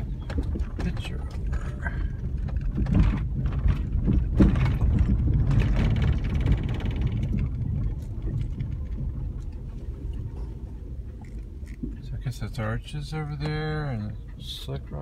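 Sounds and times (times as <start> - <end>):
fast rattle: 0.0 - 9.7
vehicle road rumble: 0.0 - 15.0.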